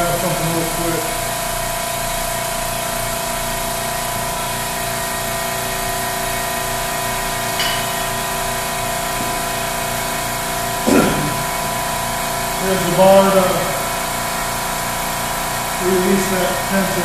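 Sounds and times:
air pump humming and hissing: 0.0 - 17.0
metal clank: 7.5 - 8.3, 10.8 - 11.7
loud knock: 10.8 - 11.7.

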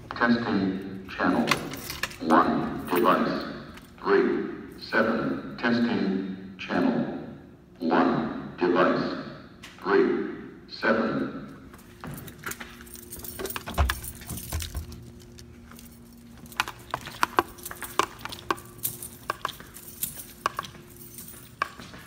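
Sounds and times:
faint steady hum: 0.0 - 22.0
keys jangling: 0.8 - 4.0, 11.7 - 22.0.

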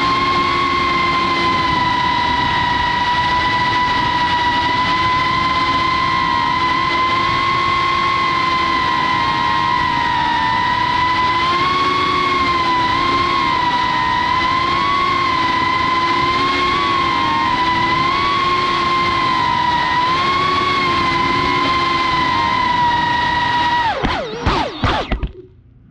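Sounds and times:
drone propellers whining: 0.0 - 25.8.

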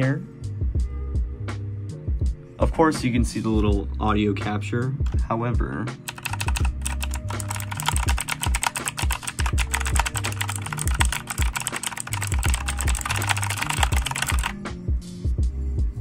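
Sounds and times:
background music with bass line: 0.0 - 5.8, 12.2 - 16.0
mechanical keyboard typing clatter: 6.1 - 14.6.

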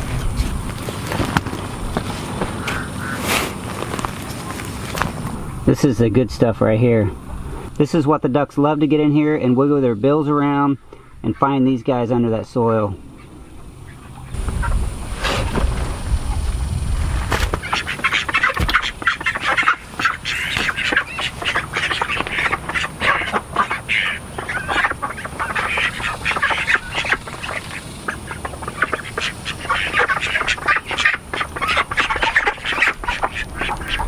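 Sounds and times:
ducks quacking: 2.4 - 3.6, 10.2 - 15.4, 17.3 - 34.0.

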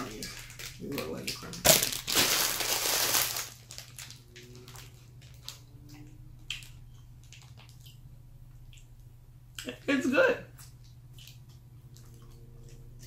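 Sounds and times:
plastic wrapper crackling: 0.0 - 5.6
chewing: 4.1 - 9.8, 10.5 - 13.0.

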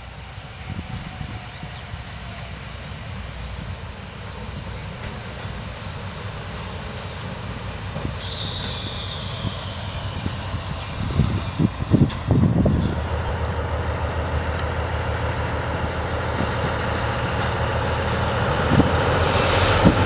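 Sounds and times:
diesel locomotive engine rumble: 0.0 - 20.0
high squeal: 8.2 - 12.9.

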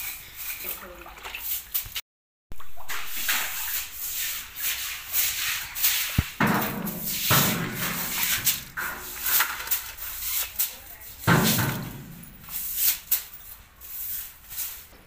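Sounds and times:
broom swishing on tiled floor: 0.0 - 2.0, 2.8 - 15.0
knock: 6.2 - 9.0.

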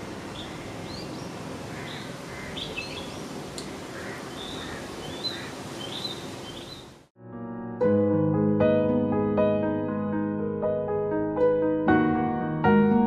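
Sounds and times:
small birds chirping: 0.0 - 7.0
piano: 7.2 - 13.0.

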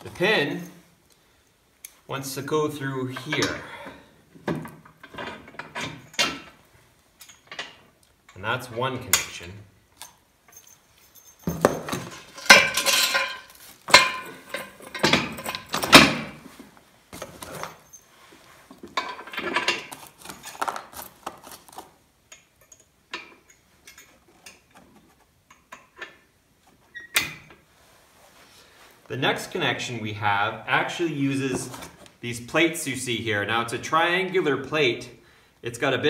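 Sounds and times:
steel parts clanking and scraping: 3.1 - 4.0, 4.6 - 6.6, 7.2 - 8.4, 9.1 - 16.4, 17.2 - 26.3
small metal clicks and clinks: 10.0 - 15.8.

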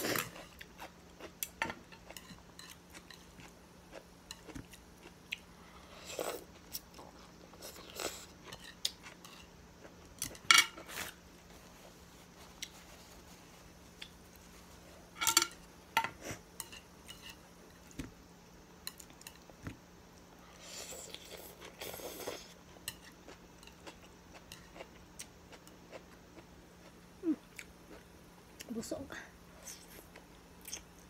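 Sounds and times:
chopsticks clinking on ceramic plate: 15.2 - 17.4.

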